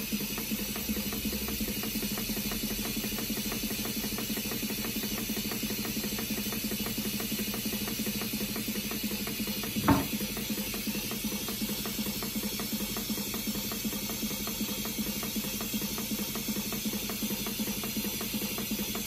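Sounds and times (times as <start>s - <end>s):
model steam engine ticking: 0.0s - 19.0s
loud knock: 9.7s - 10.3s.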